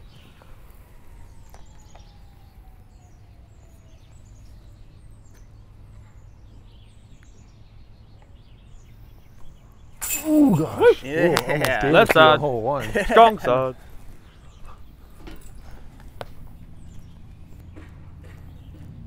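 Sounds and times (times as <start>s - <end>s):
high bird chirps: 8.6s - 11.2s.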